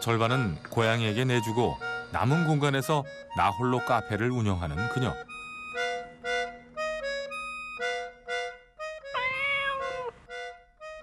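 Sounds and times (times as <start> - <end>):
light instrumental music: 0.0 - 11.0
cat meowing: 9.1 - 10.2.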